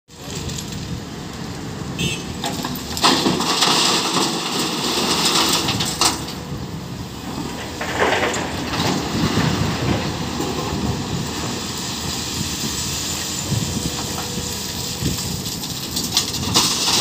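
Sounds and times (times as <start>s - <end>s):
diesel engine under load: 0.1s - 17.0s
rock clattering into truck body: 2.4s - 6.4s.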